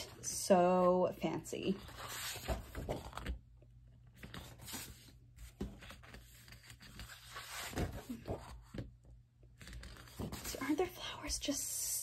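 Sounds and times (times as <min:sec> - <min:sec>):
stiff paper rustling and scraping: 0:01.8 - 0:03.4, 0:04.2 - 0:08.8.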